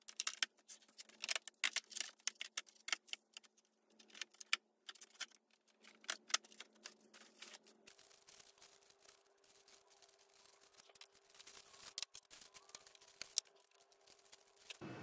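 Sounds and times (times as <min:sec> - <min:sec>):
plastic shelving clicks and rattles: 0:00.0 - 0:08.1.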